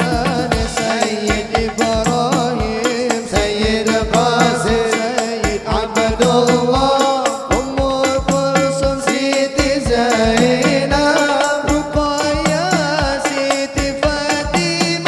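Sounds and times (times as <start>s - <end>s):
frame drums beating: 0.0s - 15.0s
man singing into microphone: 0.0s - 15.0s.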